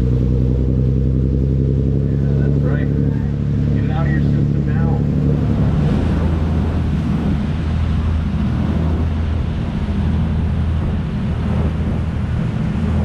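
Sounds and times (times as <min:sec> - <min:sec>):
boat engines droning: 0:00.0 - 0:13.0
rush of churning wake: 0:00.0 - 0:13.0
wind buffeting microphone: 0:00.0 - 0:13.0.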